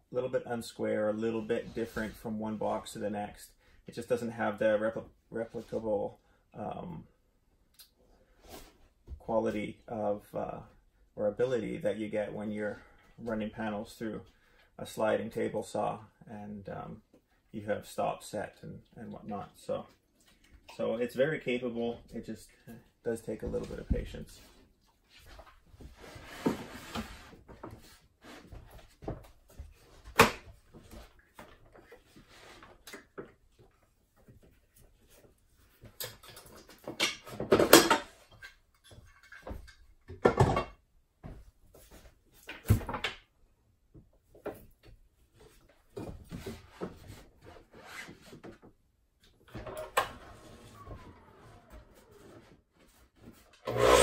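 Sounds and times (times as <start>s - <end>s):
wood scraping on wood: 25.9s - 27.4s.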